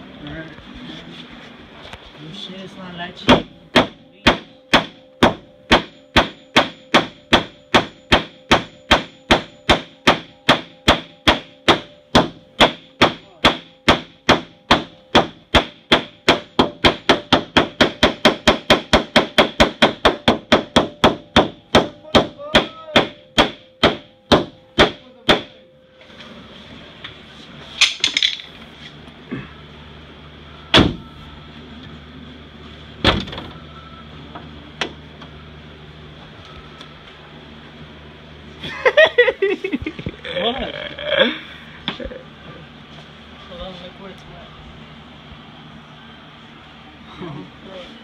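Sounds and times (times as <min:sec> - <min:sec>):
hammer striking metal: 0:03.2 - 0:25.6.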